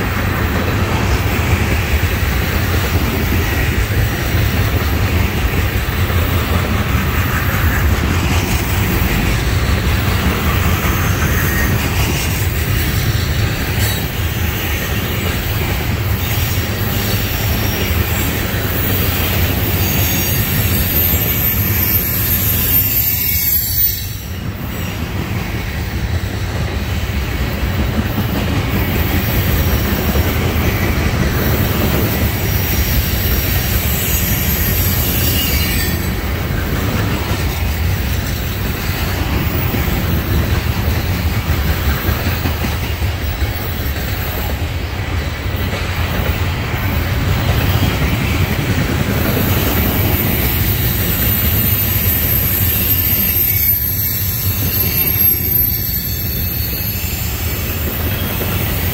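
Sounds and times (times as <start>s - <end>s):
train wheels rumbling on rails: 0.0s - 58.9s
high wheel squeal: 16.1s - 25.1s, 31.4s - 36.4s, 49.2s - 58.9s.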